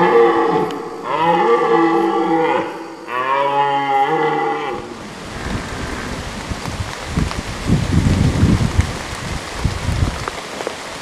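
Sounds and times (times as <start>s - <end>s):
deer stag roaring: 0.0s - 5.0s
rain-like hiss: 0.0s - 11.0s.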